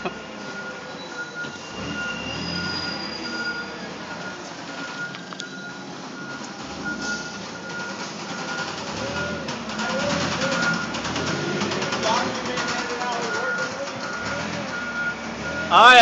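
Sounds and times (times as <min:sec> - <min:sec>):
forklift driving: 0:00.0 - 0:16.0
forklift warning alarm beeping: 0:00.0 - 0:16.0
thin high squeal: 0:01.0 - 0:03.8.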